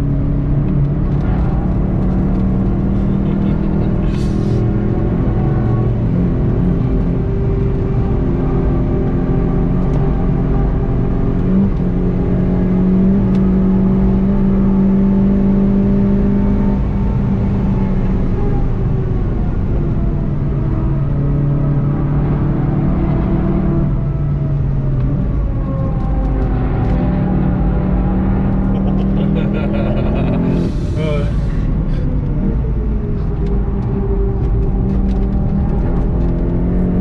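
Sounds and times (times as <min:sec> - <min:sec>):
road noise: 0:00.0 - 0:37.0
car engine revving hard: 0:26.8 - 0:32.2.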